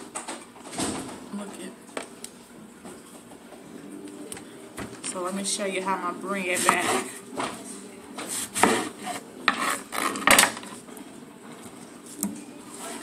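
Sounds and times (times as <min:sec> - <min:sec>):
knife cutting on wooden board: 0:06.6 - 0:07.2, 0:08.2 - 0:10.8.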